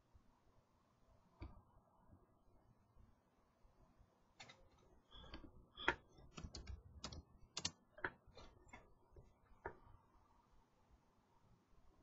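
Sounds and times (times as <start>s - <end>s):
computer keyboard key clicks: 6.4s - 7.8s.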